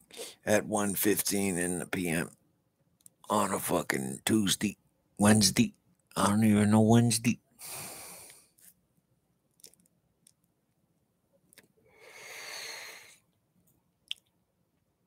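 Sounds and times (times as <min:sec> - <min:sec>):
soft breath: 0:00.0 - 0:00.4, 0:07.6 - 0:08.6, 0:11.8 - 0:13.2
mouth clicks and lip smacks: 0:09.5 - 0:10.5, 0:14.0 - 0:14.4
long exhale of smoke: 0:11.9 - 0:13.2.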